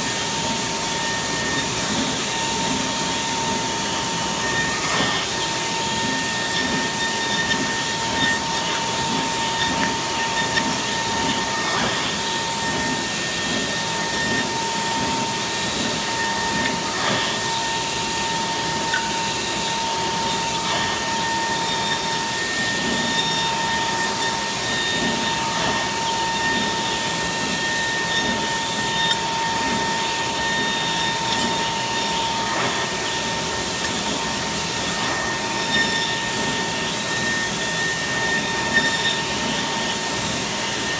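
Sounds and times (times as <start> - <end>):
milling spindle whine: 0.0 - 40.9.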